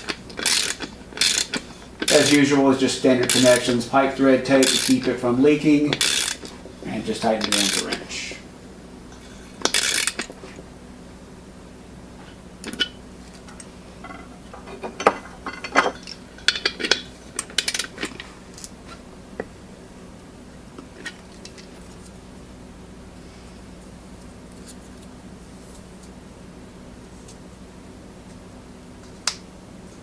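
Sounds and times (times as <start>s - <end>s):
socket ratchet clicking: 0.4s - 2.4s, 3.2s - 3.6s, 4.6s - 5.1s, 5.9s - 6.5s
metal tools clinking on tank lid: 12.7s - 17.0s.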